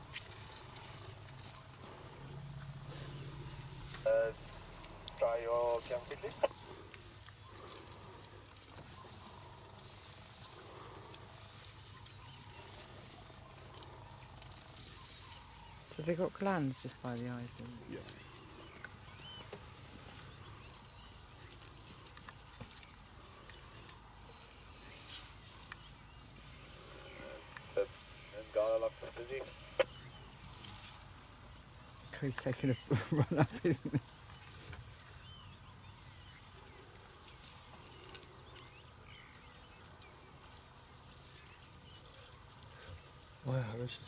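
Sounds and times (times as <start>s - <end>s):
faint bird chirps: 17.7s - 31.0s.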